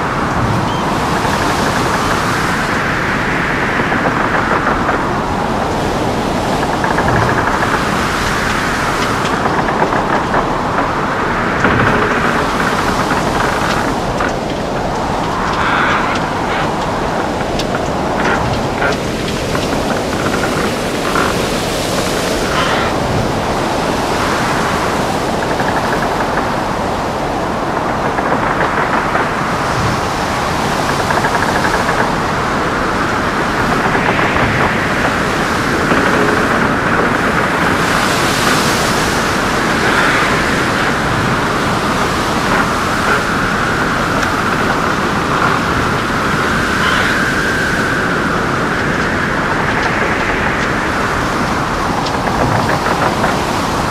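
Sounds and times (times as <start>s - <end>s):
heavy waves: 0.0s - 53.9s
wind rushing: 0.0s - 53.9s
wind whistling: 0.0s - 53.9s.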